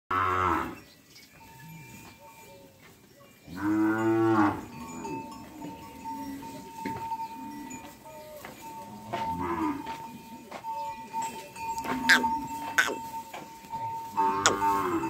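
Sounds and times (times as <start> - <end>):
cattle mooing: 11.9 - 13.0, 14.2 - 15.0.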